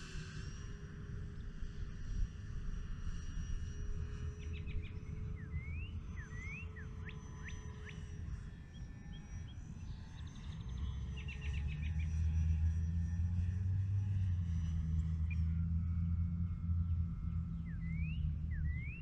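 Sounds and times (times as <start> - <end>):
birds whistling and trilling: 4.4 - 8.1, 8.7 - 12.6, 17.3 - 19.0
steady low rumble: 12.6 - 19.0.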